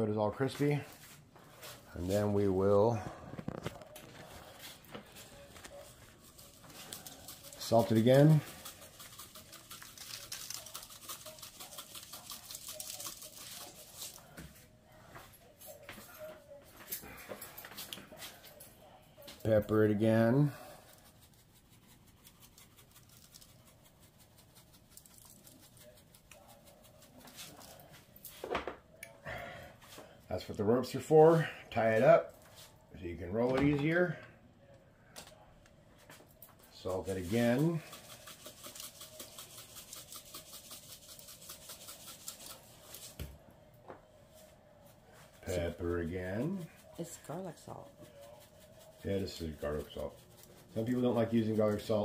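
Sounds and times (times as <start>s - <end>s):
pepper grains pattering: 5.8s - 14.4s, 19.5s - 27.9s, 36.7s - 43.1s, 45.4s - 52.0s
plastic shaker rattling: 6.3s - 14.2s, 22.5s - 27.8s, 36.8s - 43.1s.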